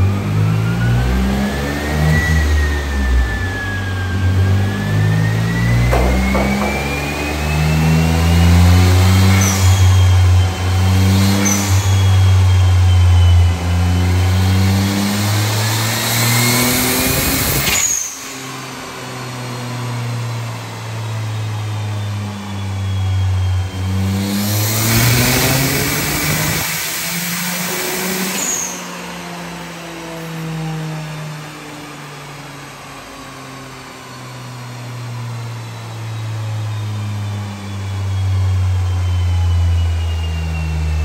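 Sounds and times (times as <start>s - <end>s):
engine revving under load: 0.0s - 20.4s, 23.5s - 29.8s.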